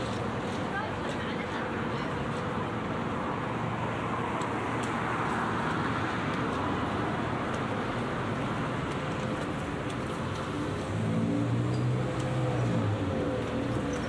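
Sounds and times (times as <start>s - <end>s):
city street traffic hum: 0.0s - 14.0s.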